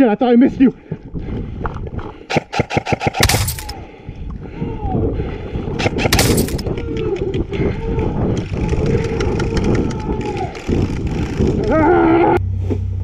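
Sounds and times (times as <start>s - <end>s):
wind noise on microphone: 0.5s - 2.3s, 3.6s - 12.4s
airsoft gun full-auto burst: 2.3s - 3.3s
rumbling movement: 5.4s - 13.0s.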